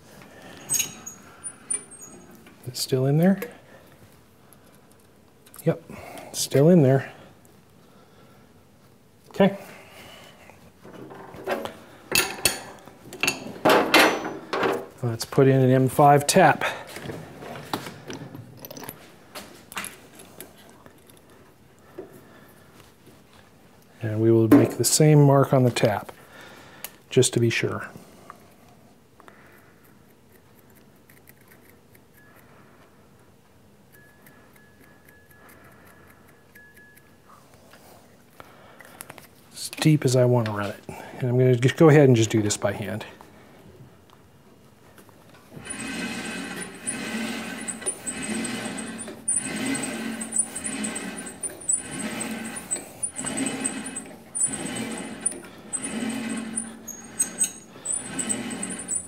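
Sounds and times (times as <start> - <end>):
thin high squeak: 0.5 - 2.4, 45.6 - 59.0
lathe chuck mechanical noise: 45.5 - 59.0.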